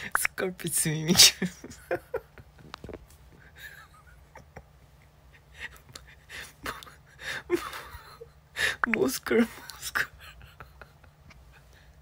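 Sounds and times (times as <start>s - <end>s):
low steady hum: 0.0s - 12.0s
man laughing in wheezing gasps: 5.3s - 8.9s.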